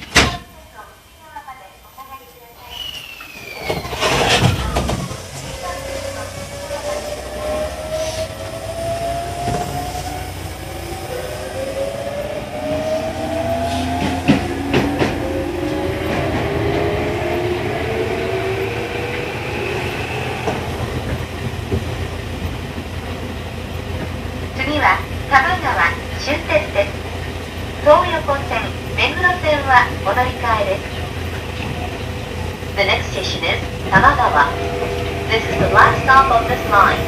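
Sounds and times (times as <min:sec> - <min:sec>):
train motors whining: 0:03.0 - 0:37.0.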